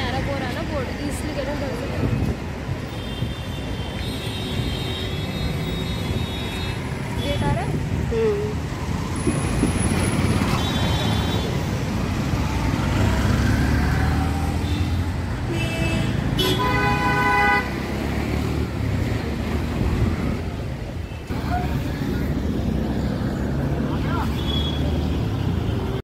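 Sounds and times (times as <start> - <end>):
street traffic: 0.0 - 26.0
vehicle horns honking: 14.6 - 17.9.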